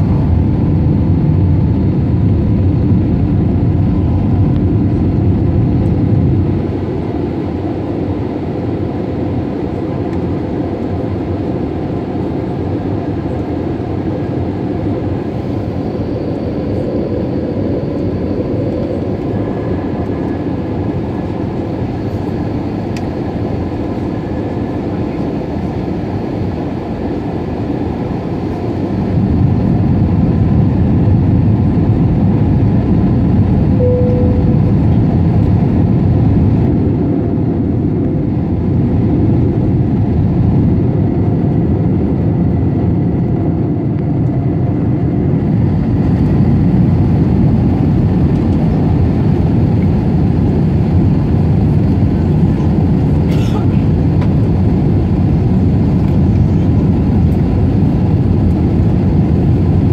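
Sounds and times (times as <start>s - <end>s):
airplane cabin roar: 0.0s - 59.9s
brief tone: 33.8s - 35.0s.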